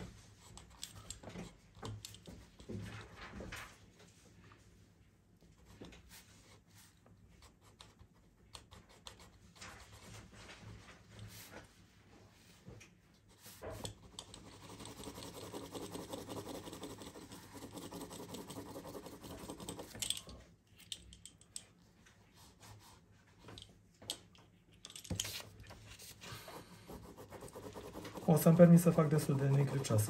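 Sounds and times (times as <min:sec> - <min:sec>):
pencil scratching on paper: 0:05.6 - 0:10.4, 0:13.3 - 0:20.0, 0:25.9 - 0:30.0.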